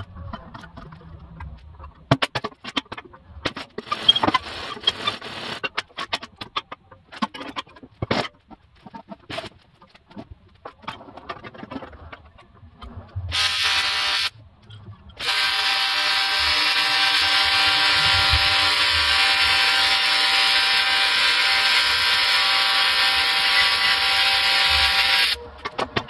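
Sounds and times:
welding arc buzzing: 3.8 - 5.6, 13.3 - 14.4, 15.2 - 25.4.

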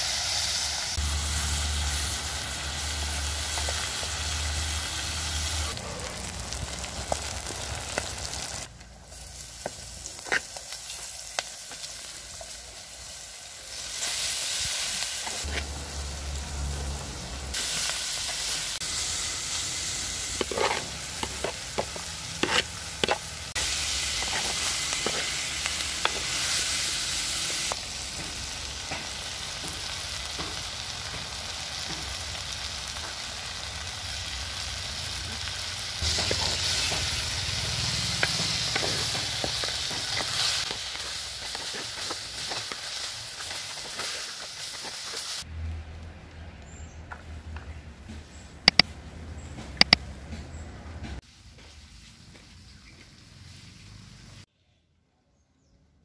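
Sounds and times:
food sizzling in a clay pot: 0.0 - 45.5
wooden spoon scraping and knocking pot: 20.3 - 26.6, 36.0 - 45.2.

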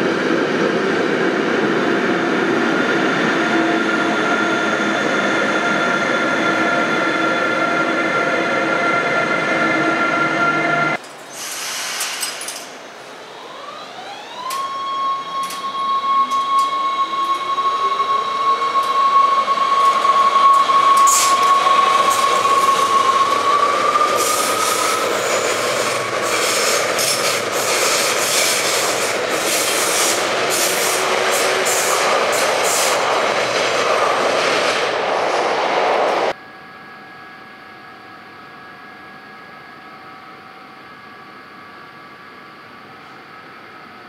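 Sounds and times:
train motor whine: 13.1 - 33.1
train wheels clattering on rails: 19.8 - 34.8.

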